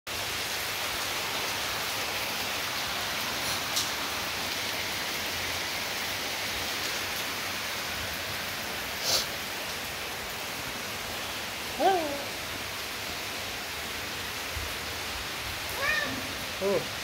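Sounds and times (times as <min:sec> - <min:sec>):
steady hiss: 0:03.1 - 0:10.2.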